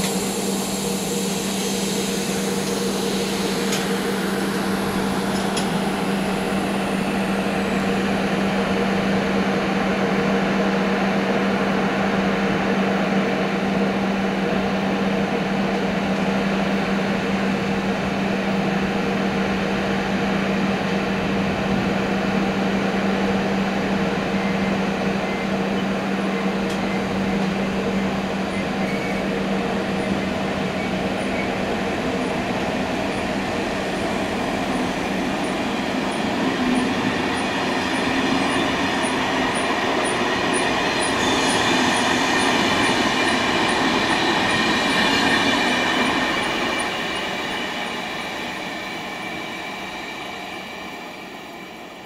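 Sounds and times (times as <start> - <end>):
ticking of moving train: 0.0 - 52.0
train humming: 0.0 - 52.0.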